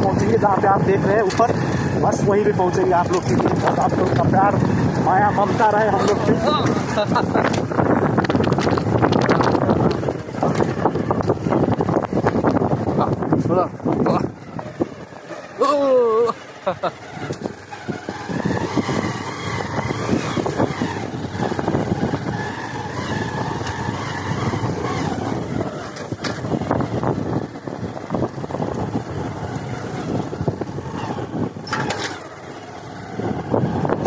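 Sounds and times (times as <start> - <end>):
knocks and rattles over bumps: 0.0 - 15.5, 16.6 - 34.0
motorcycle engine running: 0.0 - 34.0.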